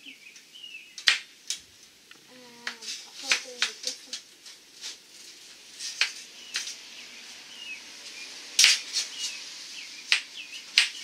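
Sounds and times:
welding arc crackling: 0:01.0 - 0:11.0.

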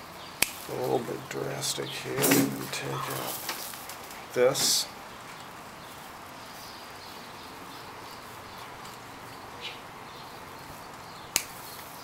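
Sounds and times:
faint hiss: 0:00.0 - 0:12.0
pruning shears snipping branch: 0:00.4 - 0:00.8, 0:11.3 - 0:11.9.

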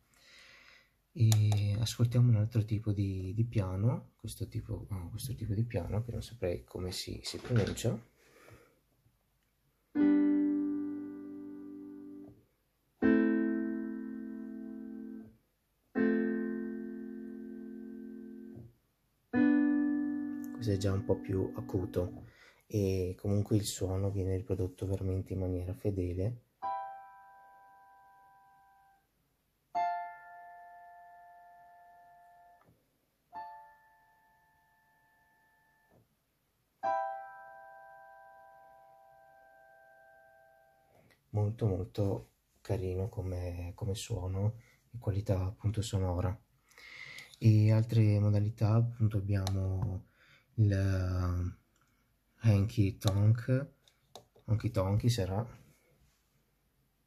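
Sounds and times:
digital piano chords: 0:09.9 - 0:36.0, 0:36.8 - 0:41.6.

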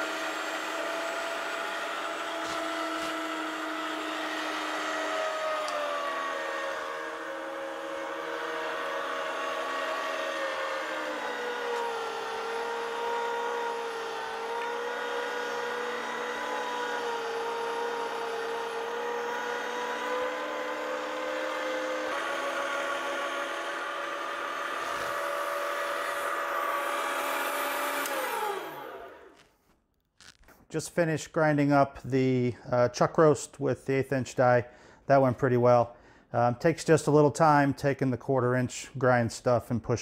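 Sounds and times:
electric meat grinder motor hum: 0:00.0 - 0:29.4.

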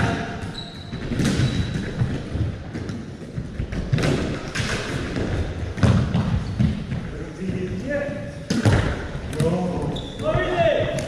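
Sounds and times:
hockey sticks and ball knocking: 0:01.0 - 0:07.7, 0:08.5 - 0:09.6.

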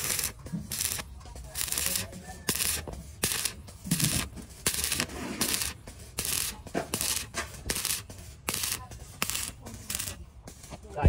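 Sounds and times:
rhythmic rasping strokes: 0:00.0 - 0:11.0.

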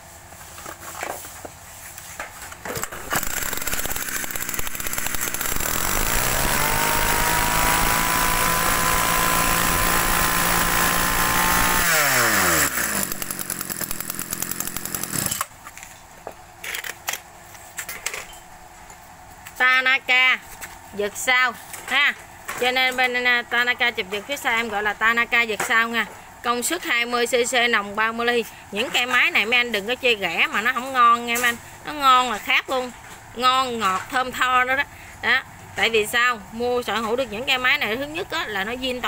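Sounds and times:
brush cutter engine revving: 0:02.7 - 0:15.5.

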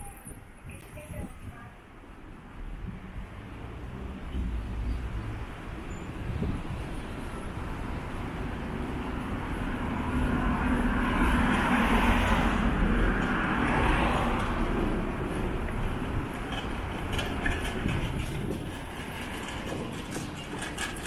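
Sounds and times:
vehicle passing: 0:08.3 - 0:17.2.

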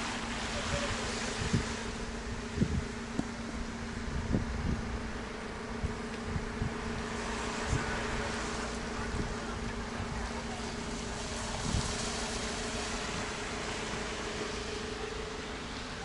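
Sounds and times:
traffic noise: 0:00.0 - 0:16.0.

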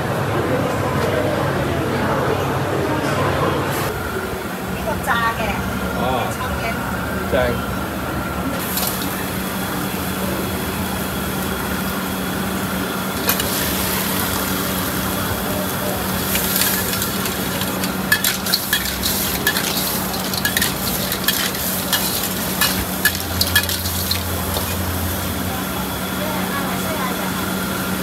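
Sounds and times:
clams sizzling in a wok: 0:08.6 - 0:28.0
metal spatula scraping a wok: 0:16.2 - 0:24.9.

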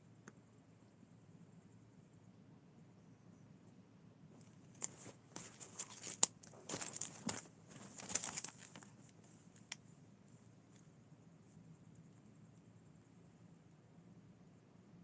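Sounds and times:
crinkling and rustling: 0:04.4 - 0:09.8.

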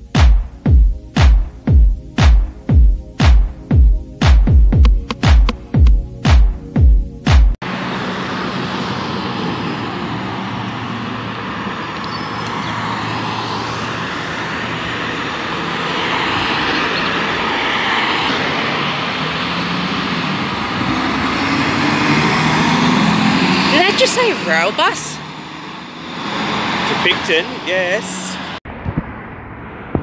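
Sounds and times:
road traffic noise: 0:05.0 - 0:30.0
bus diesel engine: 0:07.6 - 0:28.6.

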